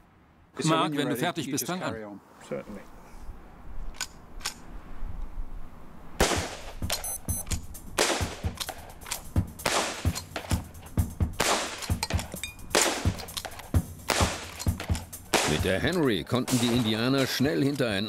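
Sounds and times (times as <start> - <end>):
rifle shots: 6.2 - 10.7, 11.4 - 17.4.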